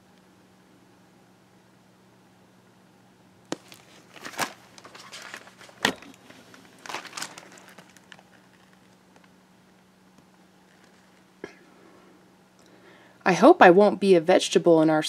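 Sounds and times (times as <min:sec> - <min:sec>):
book pages rustling: 0:03.5 - 0:09.3.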